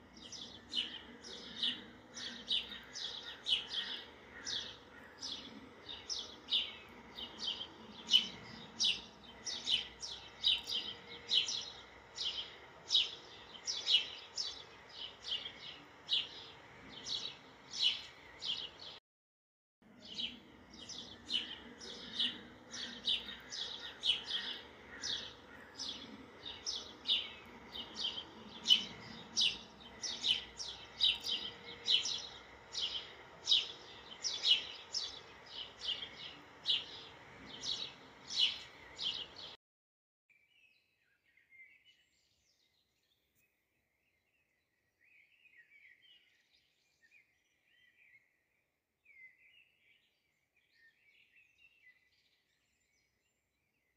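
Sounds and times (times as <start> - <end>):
bird chirping: 0.0 - 19.0, 19.9 - 39.6.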